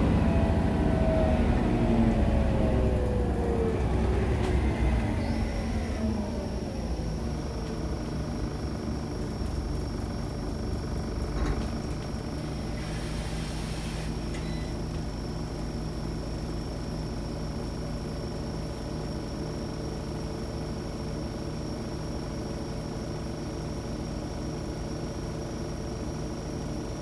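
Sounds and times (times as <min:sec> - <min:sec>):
bus engine and road rumble: 0:00.0 - 0:27.0
short hiss: 0:12.8 - 0:14.2.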